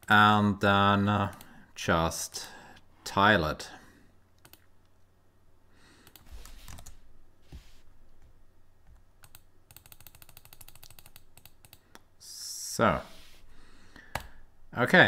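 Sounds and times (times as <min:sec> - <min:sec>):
computer mouse clicking: 0:04.4 - 0:04.7, 0:06.0 - 0:07.0, 0:08.9 - 0:12.1, 0:14.1 - 0:14.4.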